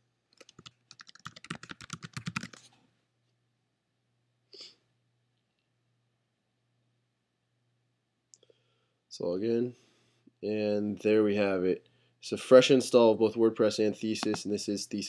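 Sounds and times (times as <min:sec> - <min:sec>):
fast typing on keyboard: 0:00.4 - 0:02.7.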